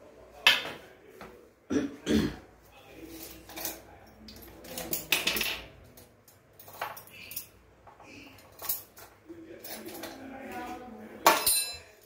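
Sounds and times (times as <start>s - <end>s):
spoon clinking against metal plates: 11.2s - 12.0s.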